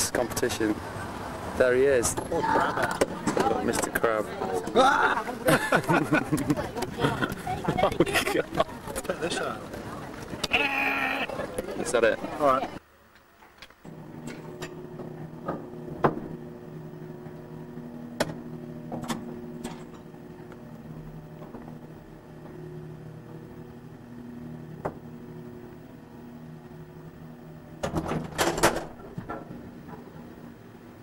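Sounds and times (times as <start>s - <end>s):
elevator machine hum: 0.0s - 12.8s, 13.8s - 31.0s.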